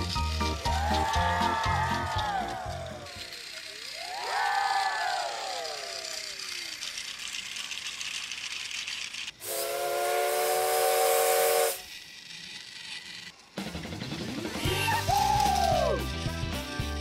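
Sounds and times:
steam hissing: 0:00.0 - 0:12.7
steam whistle blast: 0:09.4 - 0:11.8.

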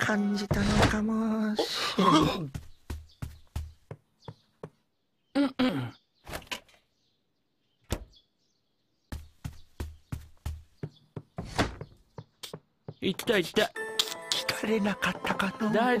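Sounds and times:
cartoon footsteps: 0:02.4 - 0:04.8, 0:09.1 - 0:13.6
door knocks and rattles: 0:11.2 - 0:12.3.

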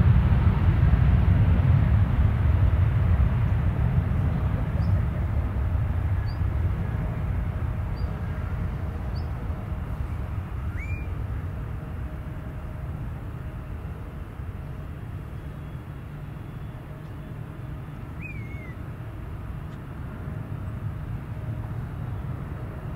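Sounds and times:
distant jet engines rumbling: 0:00.0 - 0:22.9
birds chirping: 0:06.1 - 0:11.4, 0:14.7 - 0:18.9
bird calls gliding in pitch: 0:06.2 - 0:06.5, 0:07.9 - 0:11.4, 0:15.4 - 0:19.0.

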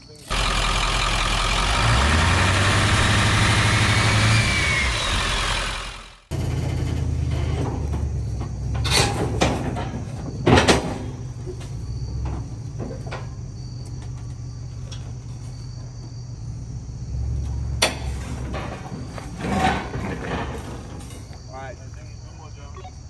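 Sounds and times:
vehicle engine running low: 0:00.3 - 0:10.2.

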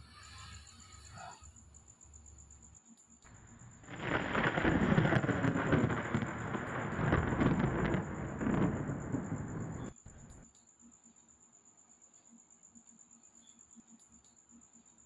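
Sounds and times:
heavy rain: 0:03.3 - 0:10.4
rolling thunder: 0:03.3 - 0:10.4.

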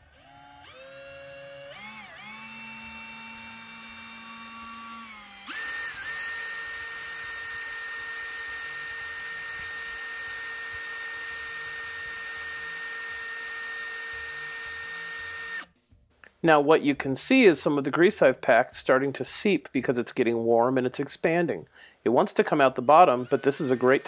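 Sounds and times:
power drill whining: 0:00.0 - 0:15.7, 0:22.8 - 0:24.0.

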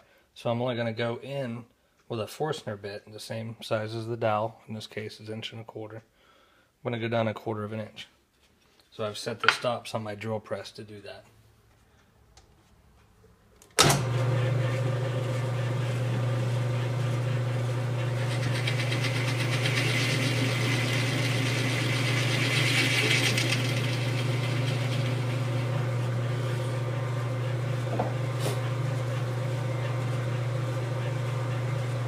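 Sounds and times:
drill press motor hum: 0:13.8 - 0:32.0.

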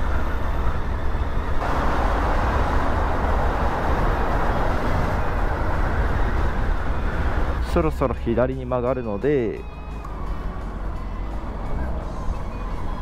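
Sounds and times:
motorcycle running: 0:00.0 - 0:07.9
wind rumble: 0:00.0 - 0:08.6
road noise: 0:00.0 - 0:13.0.

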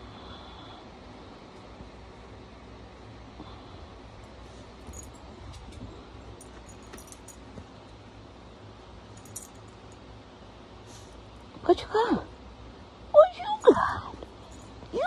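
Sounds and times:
low steady rumble: 0:00.0 - 0:15.0.

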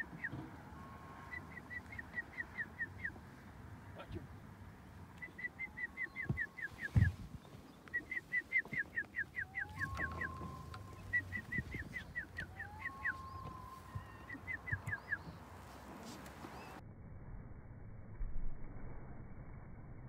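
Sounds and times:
eagle piping calls: 0:00.0 - 0:03.4, 0:05.1 - 0:16.8.

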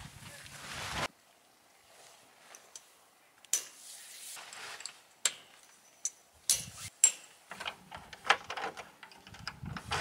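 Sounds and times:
rustling scraping noise: 0:03.7 - 0:05.1
sharp clicks and knocks: 0:05.2 - 0:10.0.

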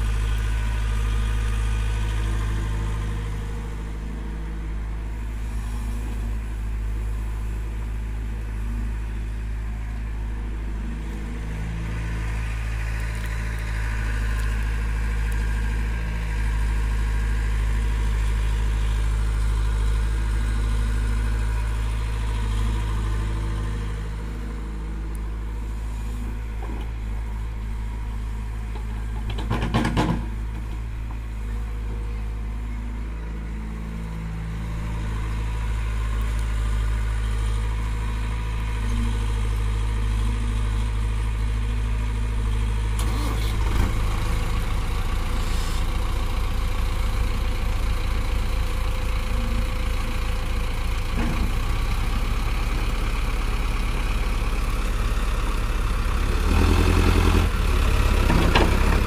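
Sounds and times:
diesel tractor engine idling: 0:00.0 - 0:59.0
hydraulic excavator running: 0:00.0 - 0:59.0
clatter of knocks: 0:28.8 - 0:30.7.

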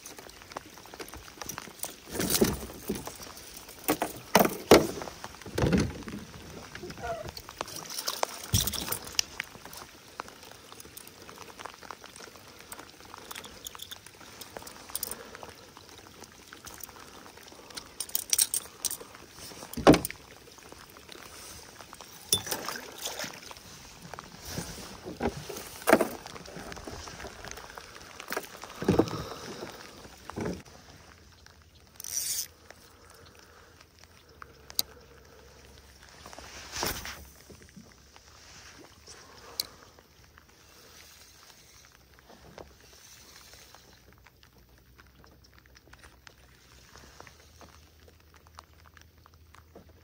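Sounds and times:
rain pattering on water: 0:00.0 - 0:50.0
rain jacket rustling: 0:16.6 - 0:31.2, 0:36.0 - 0:39.6.

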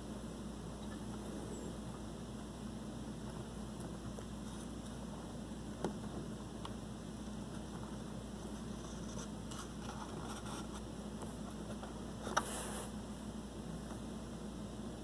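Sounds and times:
steady hiss: 0:00.0 - 0:15.0
mouse feet scratching: 0:07.4 - 0:12.9.

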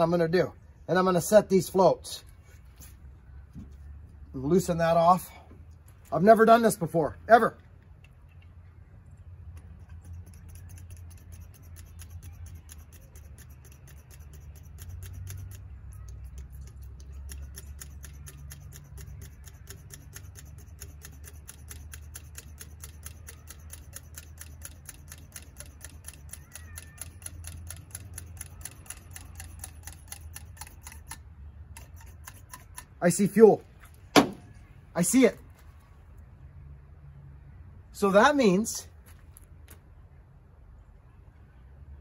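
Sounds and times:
low steady hum: 0:00.0 - 0:26.3
rapid ticking: 0:09.9 - 0:31.2.

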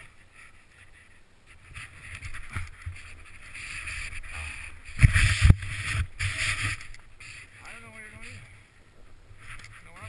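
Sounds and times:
wind on microphone: 0:01.0 - 0:07.6.

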